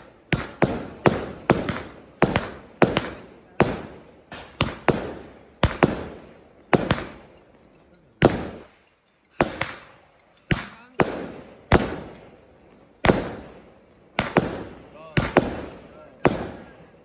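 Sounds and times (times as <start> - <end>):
fireworks bangs: 0.0 - 7.5, 8.2 - 17.0.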